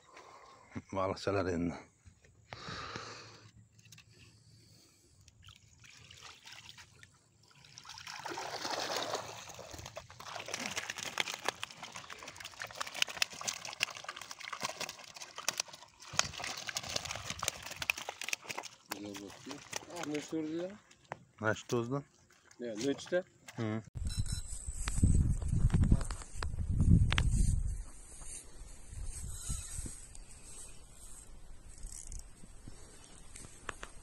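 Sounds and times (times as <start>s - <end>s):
water pouring off a net: 5.4s - 20.5s
splashes and rustles of wet net: 5.4s - 21.1s.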